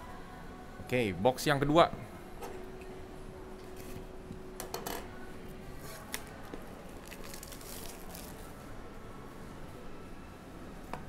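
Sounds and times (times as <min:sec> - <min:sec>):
plastic wrap tearing and crinkling: 0:07.0 - 0:08.5.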